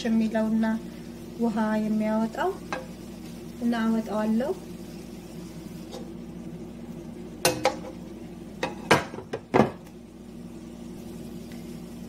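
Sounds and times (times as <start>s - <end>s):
utensil scraping frying pan: 4.8s - 6.2s.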